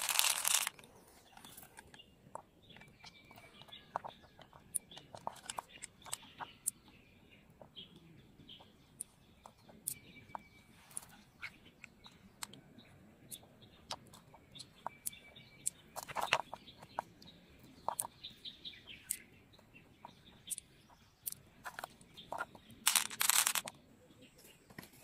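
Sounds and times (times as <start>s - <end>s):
pearls clicking together: 0.0s - 0.8s, 20.4s - 23.8s
rustling scrape: 0.0s - 1.7s, 22.9s - 23.7s
birds chirping: 0.0s - 25.0s.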